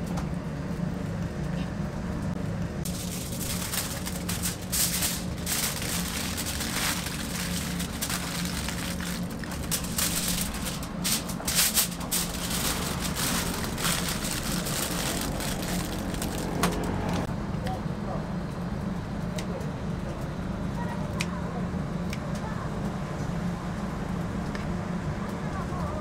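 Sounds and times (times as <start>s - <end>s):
steady low hum: 0.0s - 25.9s
aluminium foil crinkling: 2.9s - 16.8s.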